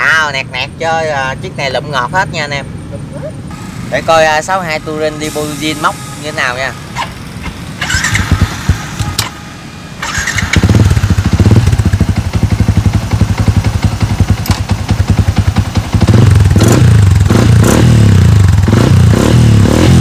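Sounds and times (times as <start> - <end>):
motorcycle engine idling and revving: 0.0 - 20.0.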